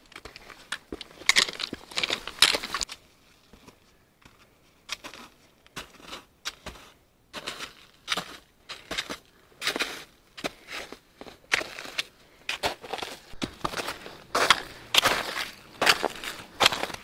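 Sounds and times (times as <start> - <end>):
footsteps crunching in snow: 5.0 - 17.0.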